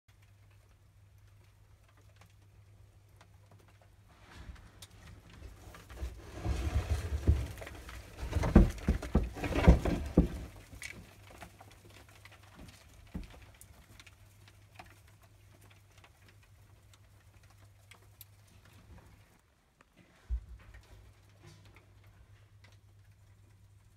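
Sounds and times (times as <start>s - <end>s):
rustling with knocks: 3.2s - 23.1s
grasshoppers ticking and rustling: 7.7s - 19.4s.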